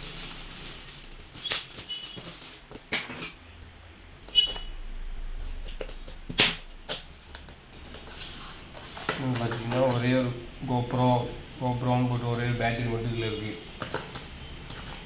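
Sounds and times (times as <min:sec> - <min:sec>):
packaging clicks and crinkles: 0:00.0 - 0:03.4, 0:13.8 - 0:15.0.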